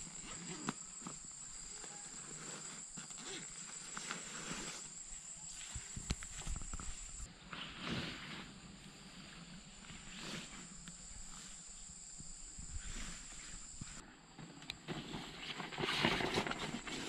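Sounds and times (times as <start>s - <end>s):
high-pitched insect drone: 0.0s - 7.3s, 9.8s - 14.0s
bamboo leaves rustling: 0.1s - 9.1s.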